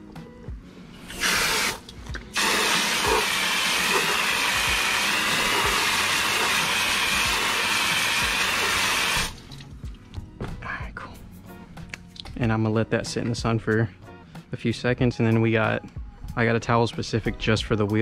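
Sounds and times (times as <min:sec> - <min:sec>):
water jet hissing on wheel: 0:01.1 - 0:09.4.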